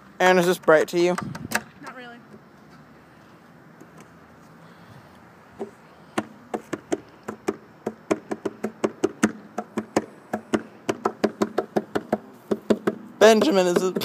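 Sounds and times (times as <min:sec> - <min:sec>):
rapid tapping on hollow surface: 0:05.6 - 0:14.0.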